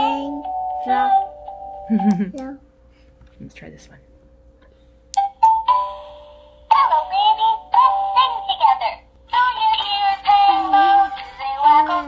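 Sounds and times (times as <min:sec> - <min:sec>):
toy singing in electronic voice: 0:06.7 - 0:12.0.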